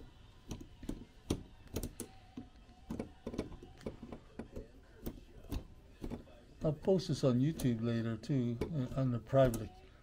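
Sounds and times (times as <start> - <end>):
metal parts clicking and tapping: 0.4 - 6.8.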